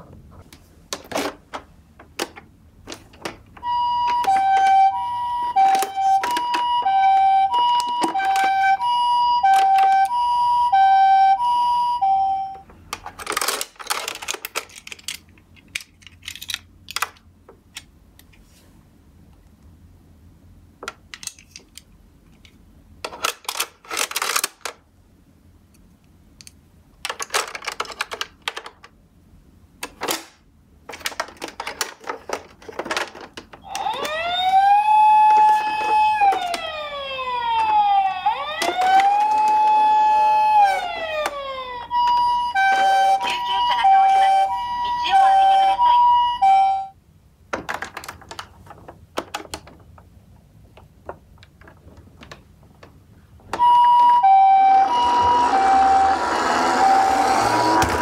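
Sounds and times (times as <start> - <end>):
toy siren rising and falling wail: 3.6 - 12.6, 33.6 - 46.9, 53.6 - 58.0
toy siren two-tone call: 3.6 - 12.6, 33.6 - 47.0, 53.6 - 58.0
plastic toy clicks and rattles: 13.0 - 17.2, 23.1 - 24.8, 27.0 - 28.9, 29.8 - 34.2.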